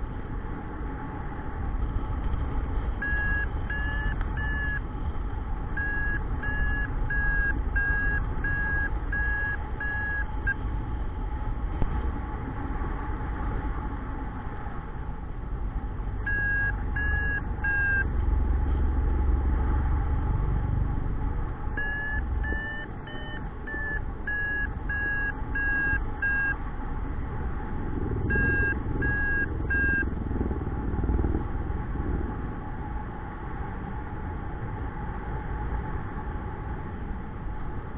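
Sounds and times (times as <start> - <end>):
variometer beeping in short pulses: 3.0 - 4.8, 5.8 - 10.3, 16.3 - 18.1, 21.8 - 26.6, 28.3 - 30.1.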